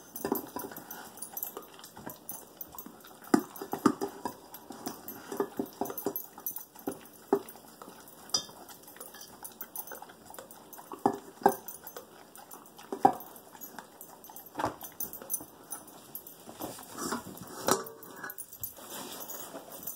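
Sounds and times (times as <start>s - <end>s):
dog crunching kibble: 0.2s - 19.8s.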